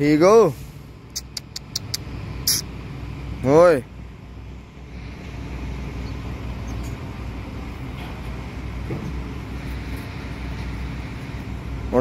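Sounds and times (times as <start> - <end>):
low rumble of vehicles: 0.0 - 12.0.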